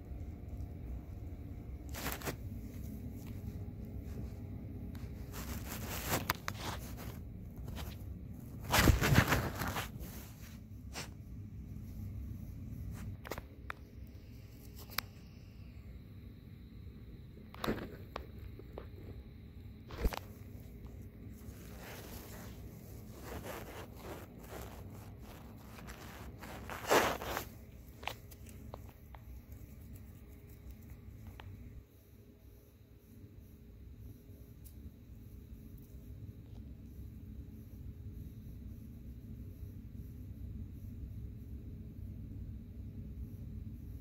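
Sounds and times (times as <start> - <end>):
rustling and scraping: 0.2 - 15.2, 17.5 - 19.2, 19.9 - 32.1.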